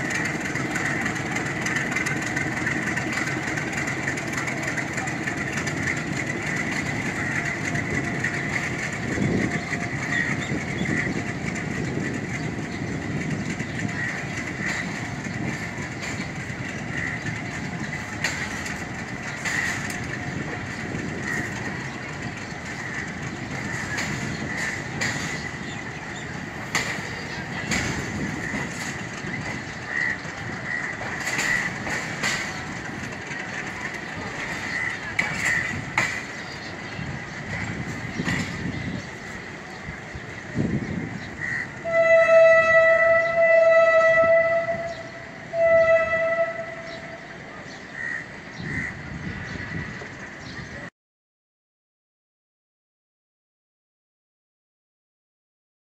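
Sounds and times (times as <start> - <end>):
wheel clacks over rails: 0.0 - 41.0
train coaches rumbling on track: 0.0 - 50.9.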